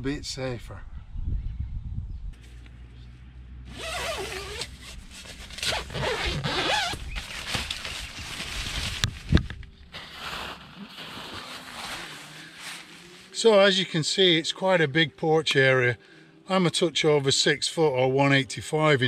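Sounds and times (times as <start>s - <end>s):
tent zip pulled open: 3.7s - 13.4s
tent fabric rustling: 3.7s - 14.0s.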